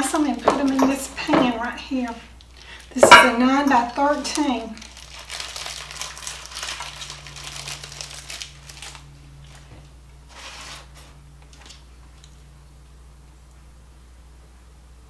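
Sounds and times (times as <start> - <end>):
plastic wrapper crinkling: 3.8 - 12.3.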